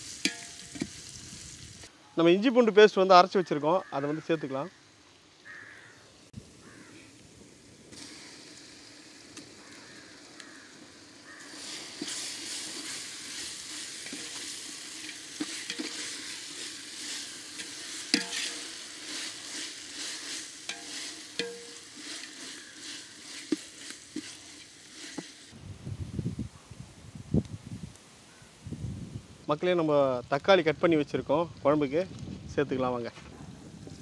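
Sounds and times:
food sizzling in hot oil: 0:00.0 - 0:01.9, 0:04.8 - 0:25.6
utensil knocking against pot: 0:18.1 - 0:18.6, 0:20.7 - 0:21.9.

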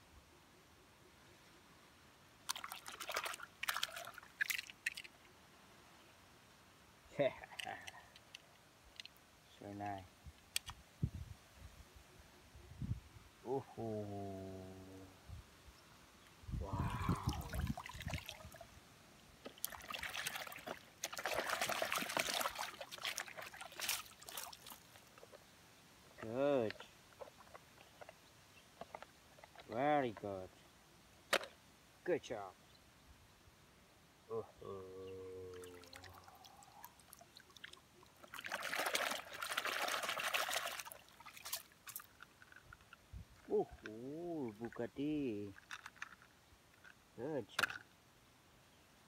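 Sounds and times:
muddy water splashing: 0:02.4 - 0:05.2, 0:16.7 - 0:18.7, 0:19.4 - 0:25.4, 0:35.5 - 0:42.6, 0:43.6 - 0:45.0
faint drips and clicks: 0:07.4 - 0:09.2
hand splashing in water: 0:17.0 - 0:18.6.

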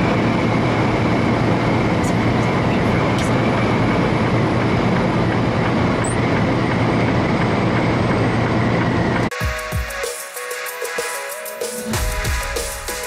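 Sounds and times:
truck engine and road noise: 0:00.0 - 0:09.4.

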